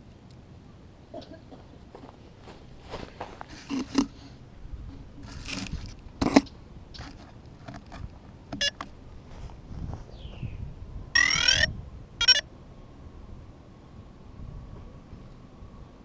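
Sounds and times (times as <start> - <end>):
quadcopter being handled on grass: 1.9 - 4.4, 5.2 - 10.5
brief electronic tone: 11.2 - 12.4.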